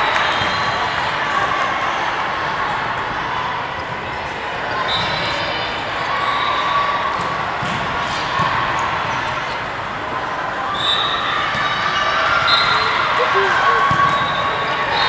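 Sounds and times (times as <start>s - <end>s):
echoing hubbub of players: 12.4s - 15.0s.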